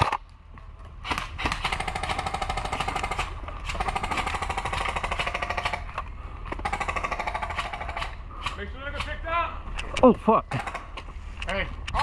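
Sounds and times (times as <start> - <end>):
airsoft rifle rapid fire: 1.1 - 5.9, 6.6 - 8.2.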